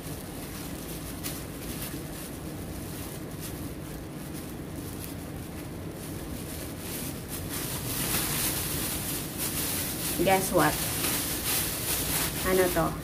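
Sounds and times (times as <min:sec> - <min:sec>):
low background rumble: 0:00.0 - 0:13.0
plastic bag and cling film rustling: 0:00.0 - 0:13.0.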